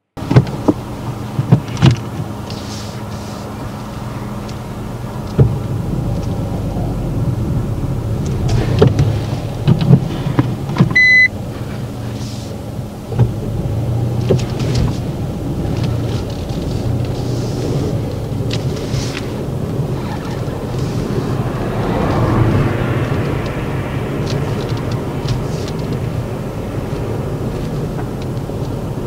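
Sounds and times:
car engine idling: 0.1s - 29.0s
clicks and knocks from controls: 8.2s - 11.3s
short electronic beep: 11.0s - 11.3s.

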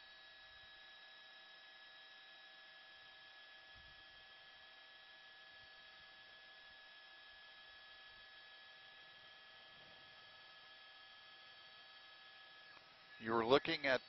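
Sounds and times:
faint electronic hum and hiss: 4.5s - 14.0s.

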